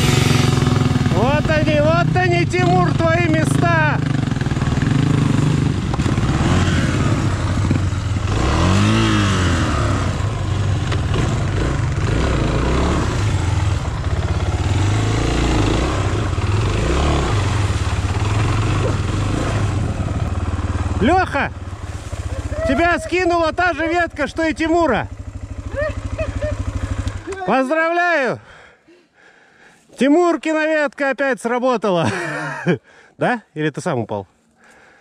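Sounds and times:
motorcycle engine running: 0.0 - 27.6.

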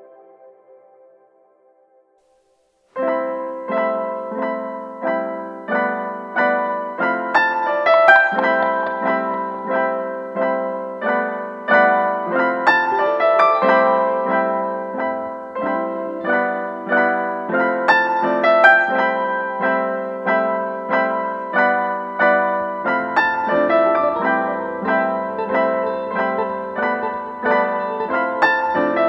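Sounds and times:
gentle piano melody: 2.9 - 29.0.

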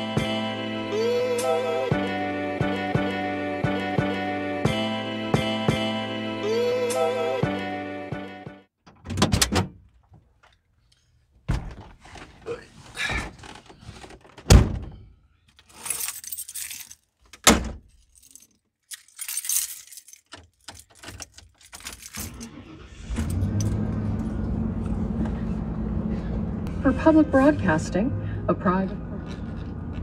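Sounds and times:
truck door shutting: 14.4 - 15.0
keys jangling: 15.6 - 23.9
truck engine starting and idling: 22.0 - 30.0.

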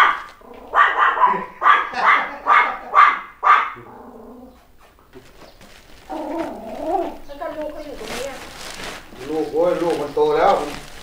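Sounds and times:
dog barking: 0.0 - 4.0.

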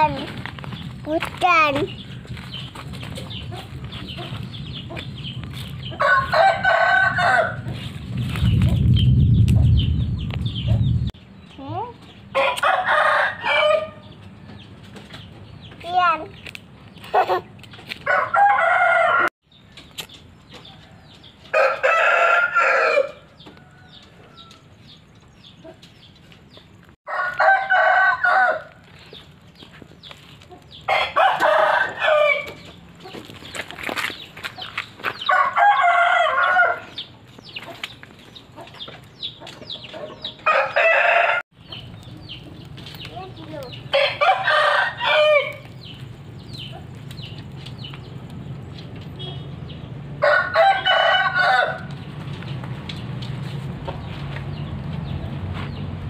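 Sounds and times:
roosters crowing: 2.8 - 8.2, 12.3 - 14.6, 18.0 - 19.3, 20.6 - 25.1, 27.1 - 29.2, 30.4 - 33.5, 34.5 - 37.8, 38.6 - 42.4, 43.6 - 47.9, 49.6 - 52.6.

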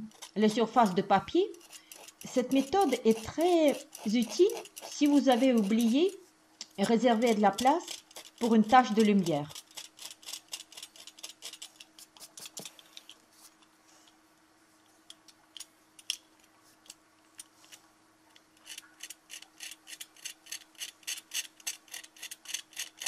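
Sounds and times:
blade scraping paint off paper: 0.0 - 6.2, 7.1 - 12.8.

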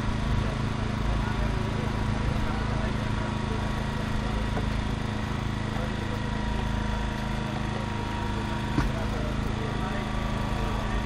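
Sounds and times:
small petrol engine running: 0.0 - 11.0.

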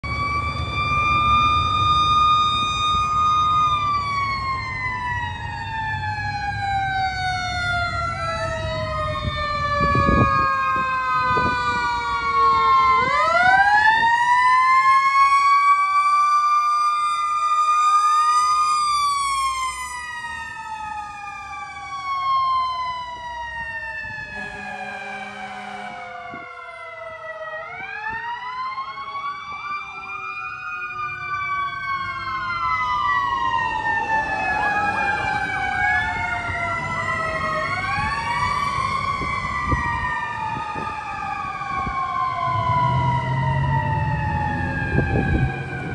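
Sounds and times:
electronic wail and yelp sirens: 0.0 - 45.9
horn blast: 24.3 - 26.2.

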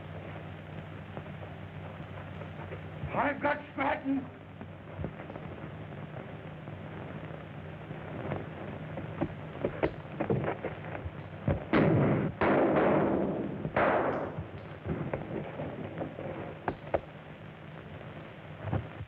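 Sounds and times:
light pops and crackle: 0.0 - 3.3, 4.4 - 19.0
loud gunshot cracks: 11.7 - 15.3
sharp gunshots: 11.7 - 15.4.

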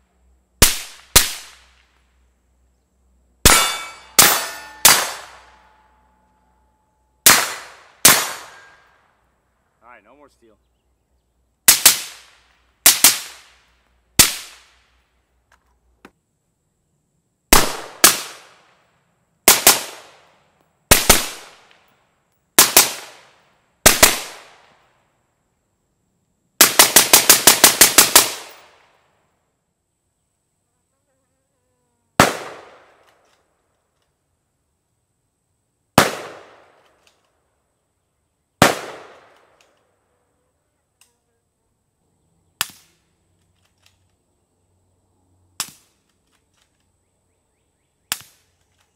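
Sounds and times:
suppressed rifle gunshots: 0.6 - 1.6, 3.4 - 5.6, 7.2 - 8.8, 17.5 - 18.6, 19.5 - 20.1, 20.9 - 21.7, 23.8 - 24.6, 32.2 - 33.0, 36.0 - 36.8, 38.6 - 39.5
high insect buzz: 29.6 - 32.2, 39.9 - 43.2.

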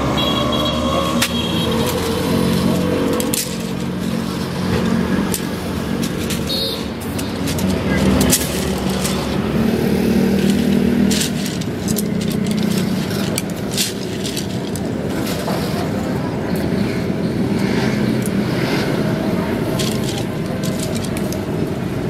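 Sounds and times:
vehicle engine humming: 0.0 - 22.0
bamboo sticks clicking together: 1.1 - 15.8, 19.0 - 21.8.

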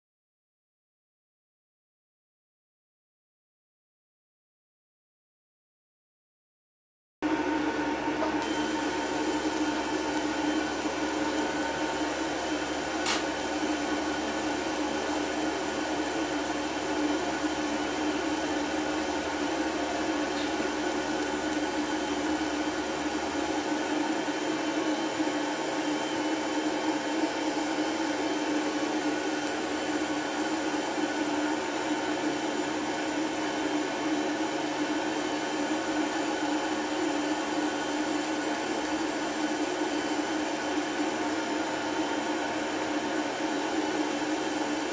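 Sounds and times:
laser machine whirring hum: 7.2 - 44.9
sharp click: 13.0 - 13.3.

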